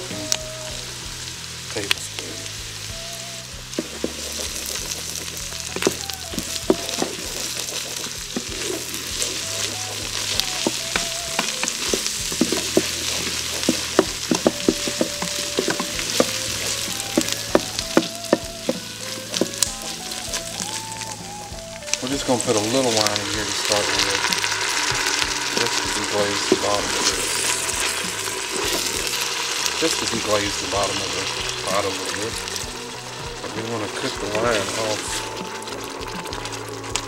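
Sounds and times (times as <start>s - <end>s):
vegetables sizzling in a pot: 0.0s - 37.0s
wooden spoon scraping pot: 3.8s - 20.8s.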